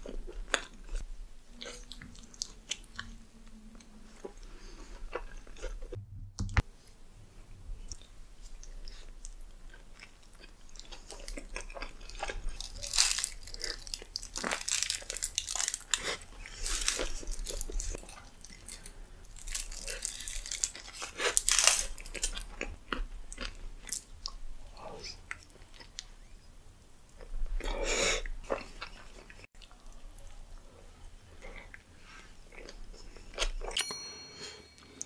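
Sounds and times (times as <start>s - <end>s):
crunchy chewing: 7.9s - 26.1s.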